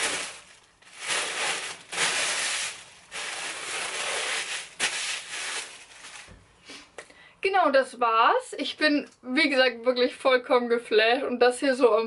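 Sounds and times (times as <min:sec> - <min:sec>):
clothes and packaging rustling: 0:00.0 - 0:06.9.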